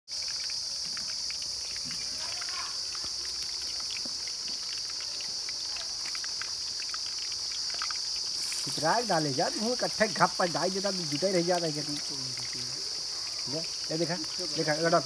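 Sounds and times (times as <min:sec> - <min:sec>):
faint ticks: 0:00.1 - 0:08.8
insects chirring: 0:00.1 - 0:15.0.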